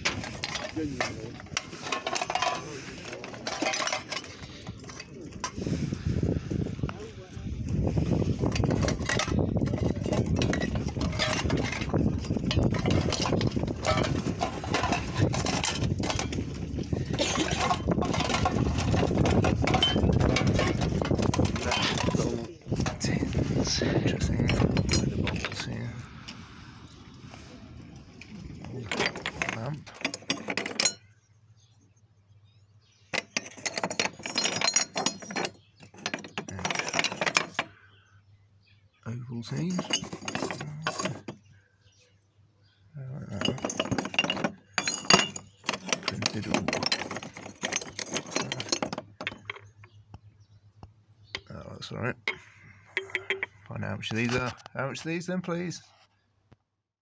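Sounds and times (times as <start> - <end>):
metal tins clinking together: 0.0 - 5.6, 8.5 - 23.2, 24.1 - 25.7, 33.2 - 37.7, 39.6 - 41.4, 43.4 - 49.7, 52.3 - 54.5.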